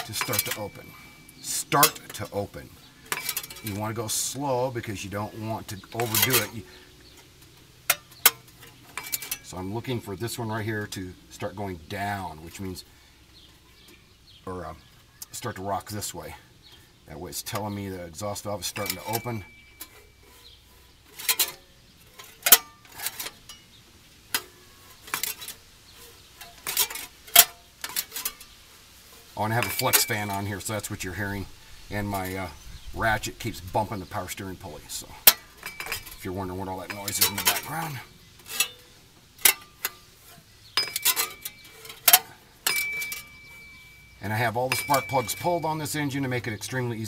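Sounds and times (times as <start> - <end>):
metallic clanks and clinks: 0.0 - 4.4, 5.9 - 10.0, 18.3 - 25.6, 26.4 - 28.5, 29.4 - 31.2, 33.4 - 40.1, 40.7 - 46.8
fan blades clinking: 0.0 - 47.0.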